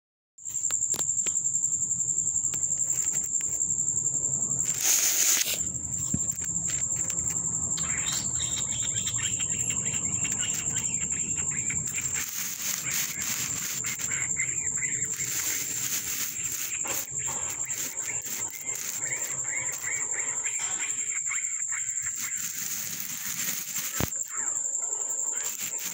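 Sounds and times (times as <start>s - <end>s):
cricket trilling: 0.4s - 25.9s
rustling noise: 4.6s - 7.4s, 11.7s - 14.3s, 15.0s - 20.0s, 22.0s - 24.2s, 25.4s - 25.9s.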